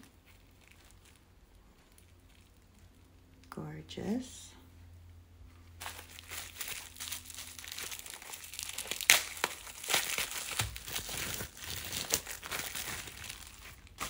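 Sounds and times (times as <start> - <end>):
packaging crinkling: 0.0 - 3.1, 5.7 - 14.0.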